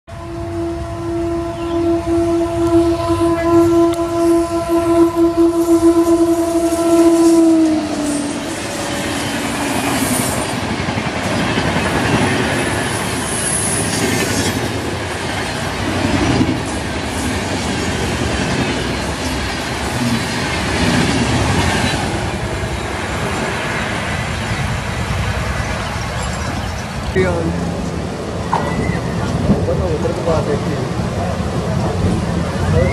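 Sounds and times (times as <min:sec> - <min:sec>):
train horn: 0:00.1 - 0:10.4
train wheels clacking on rails: 0:07.6 - 0:24.2.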